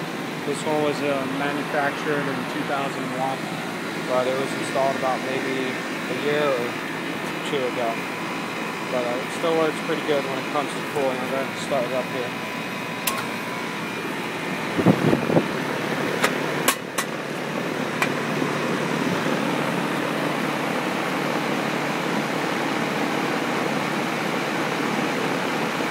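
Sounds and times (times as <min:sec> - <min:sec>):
fan and compressor air rush: 0:00.0 - 0:25.9
heat pump clicks and knocks: 0:13.0 - 0:13.4, 0:16.1 - 0:17.2, 0:17.9 - 0:18.2.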